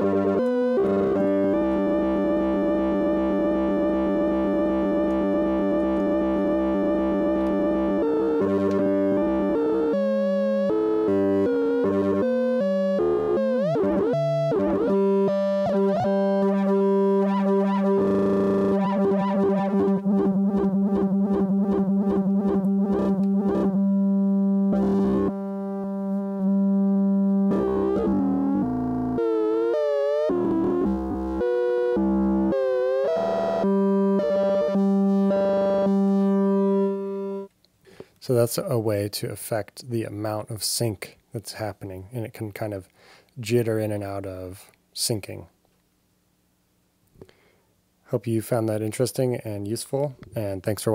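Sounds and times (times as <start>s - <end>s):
synthesizer tone sweeping: 0.0s - 37.5s.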